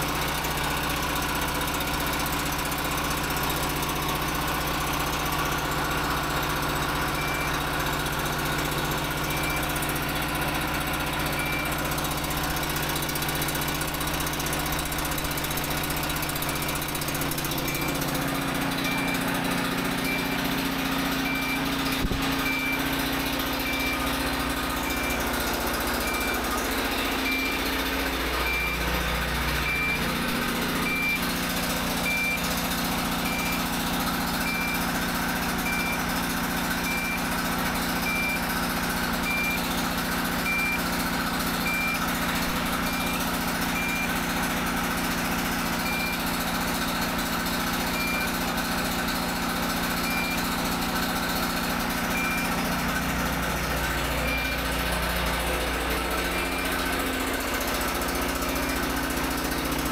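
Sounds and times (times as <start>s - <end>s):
generator engine running: 0.0s - 59.9s
high alarm beeps: 7.1s - 7.6s, 8.6s - 32.5s, 33.2s - 33.8s, 34.4s - 35.0s, 35.6s - 36.1s, 36.8s - 37.4s, 38.0s - 38.5s, 39.2s - 39.8s, 40.4s - 45.1s, 45.8s - 46.4s, 47.8s - 59.8s.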